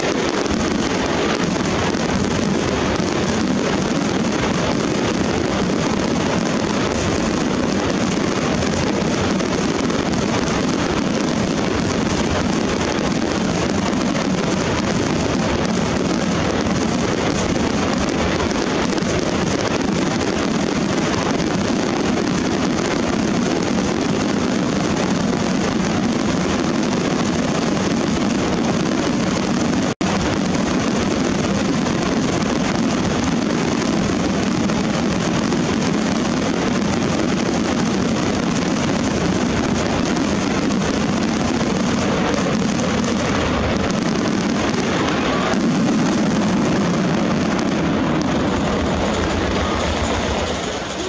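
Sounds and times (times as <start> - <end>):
fireworks barrage rumble: 0.0 - 51.0.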